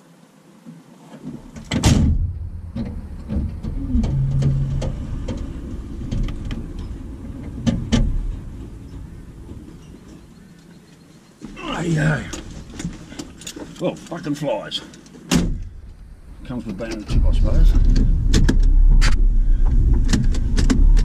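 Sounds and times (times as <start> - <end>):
vehicle engine and tyre rumble: 1.3 - 21.0
trailer knocking and rattling: 1.6 - 10.4, 15.3 - 21.0.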